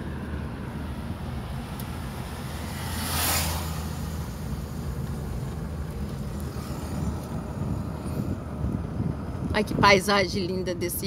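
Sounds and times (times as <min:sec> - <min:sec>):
car road and engine rumble: 0:00.0 - 0:11.0
rushing whoosh: 0:02.0 - 0:08.6.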